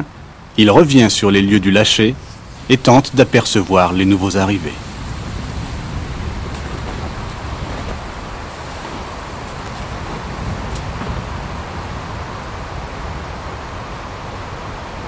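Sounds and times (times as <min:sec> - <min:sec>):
wind rumble on microphone: 0:01.9 - 0:15.0
boots crunching on snow: 0:05.5 - 0:11.0.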